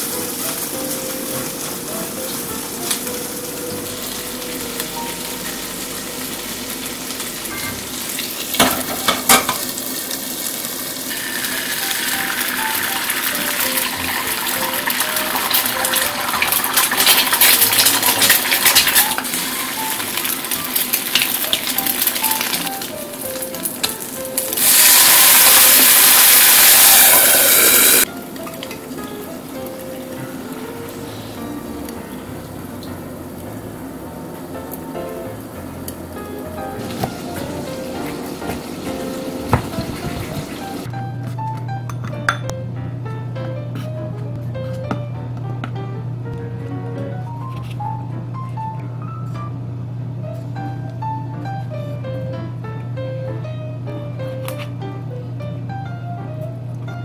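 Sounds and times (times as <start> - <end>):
soft background music: 0.0 - 10.1, 11.0 - 57.0
loud hiss from pans: 0.0 - 31.8, 34.6 - 40.9
food sizzling in frying pans: 0.0 - 40.9.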